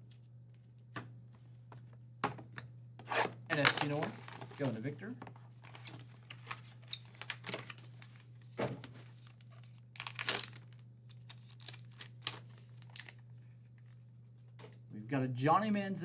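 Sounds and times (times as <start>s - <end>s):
card pack pouch crinkling: 3.5s - 5.0s, 9.2s - 13.2s.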